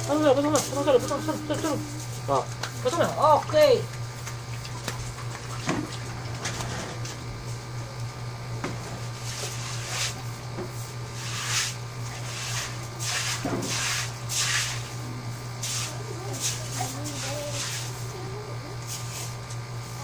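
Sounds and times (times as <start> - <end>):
hose spraying water on concrete: 0.0 - 3.1, 9.2 - 20.0
steady low hum: 0.0 - 20.0.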